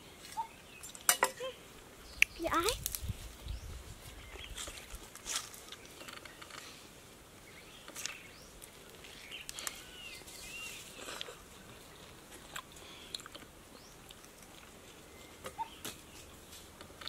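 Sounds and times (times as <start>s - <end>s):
birds chirping: 0.0s - 16.6s
fruit rind crackling snaps: 2.2s - 3.1s.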